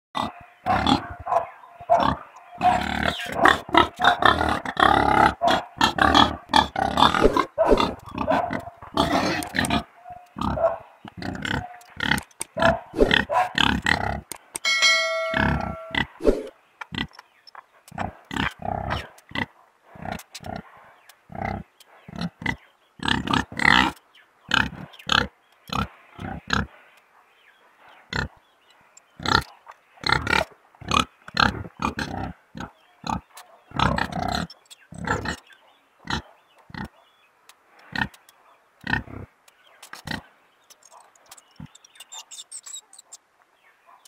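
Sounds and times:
pigs grunting: 0.2s - 14.3s, 17.9s - 26.7s, 28.1s - 28.4s, 29.2s - 37.0s, 38.8s - 39.3s.

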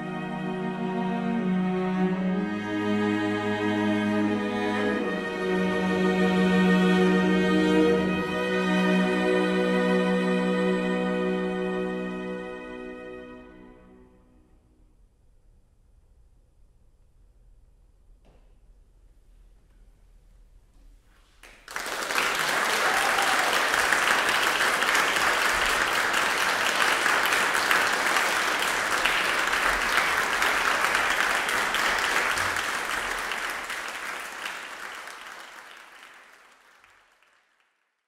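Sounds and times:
audience applauding: 21.4s - 38.0s.

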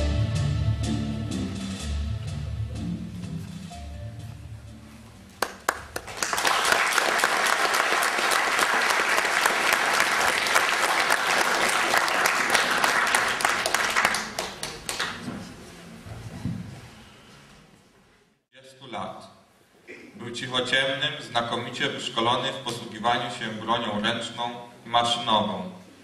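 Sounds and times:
audience applauding: 5.4s - 15.3s.

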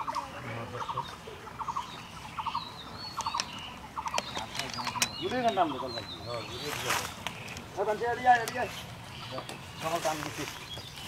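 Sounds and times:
bird calling repeatedly: 0.0s - 11.0s
sharp clicks: 3.1s - 5.6s.

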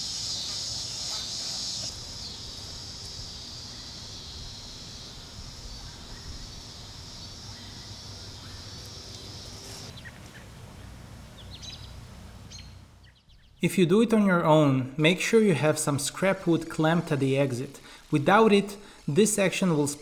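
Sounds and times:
insect chorus: 0.0s - 10.1s, 15.9s - 20.0s
bird chirps: 11.4s - 13.7s.

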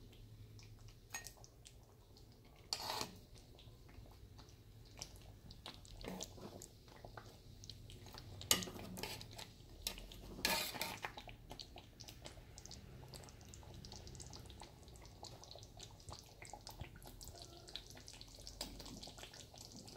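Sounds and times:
curry sizzling and crackling: 0.0s - 19.9s
metal spatula scraping pot: 2.6s - 3.2s, 6.0s - 6.7s, 8.5s - 11.2s.

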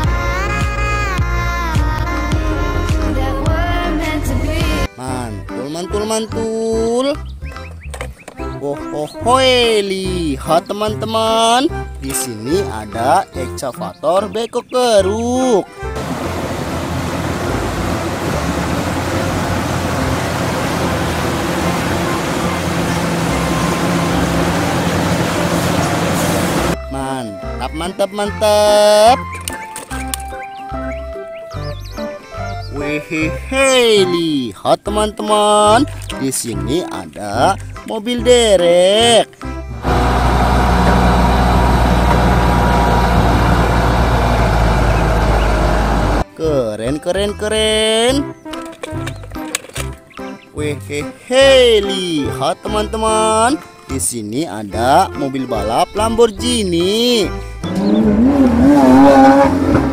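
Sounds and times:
excavator diesel engine drone: 15.9s - 26.8s, 39.7s - 46.3s, 57.6s - 59.9s.

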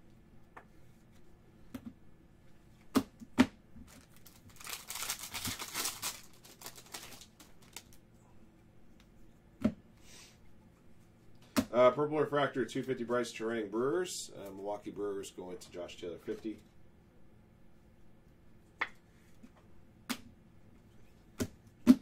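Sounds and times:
wrapper tearing and crinkling: 3.9s - 8.0s.

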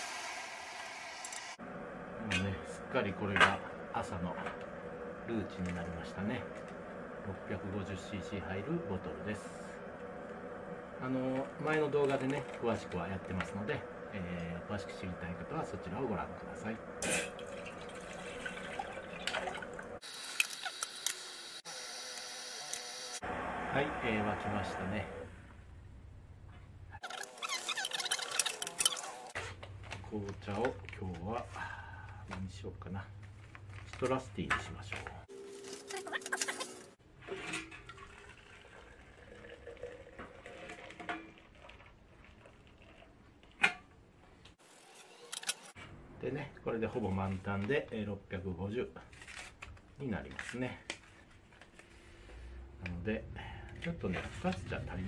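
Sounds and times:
kettle hissing on stove: 0.0s - 17.3s
faint water bubbling: 10.9s - 20.0s, 37.9s - 43.2s
wrapper tearing: 35.5s - 36.9s.

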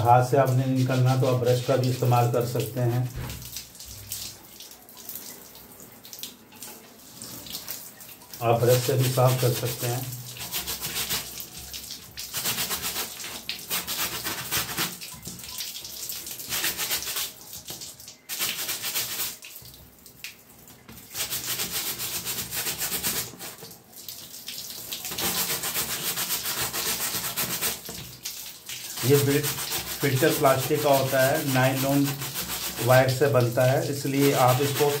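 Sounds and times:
brush scrubbing filter: 0.0s - 3.3s, 8.4s - 11.5s, 12.2s - 15.0s, 16.2s - 17.4s, 18.3s - 19.4s, 21.0s - 23.7s, 25.0s - 28.1s, 28.8s - 35.0s.

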